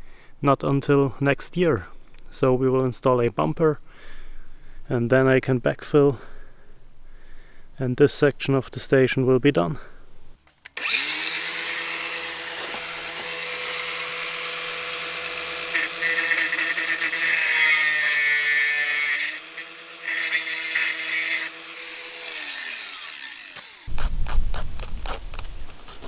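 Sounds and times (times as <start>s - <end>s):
angle grinder cutting metal rail: 10.7s - 24.1s.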